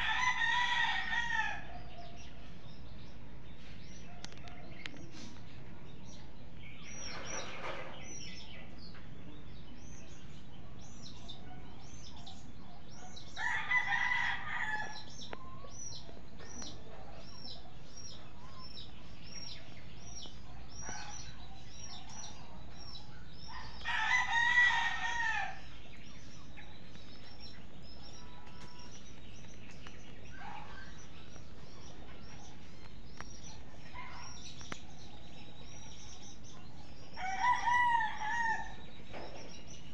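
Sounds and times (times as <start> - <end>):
rooster crowing: 0.0 - 1.8, 13.4 - 15.2, 23.8 - 25.7, 37.2 - 38.9.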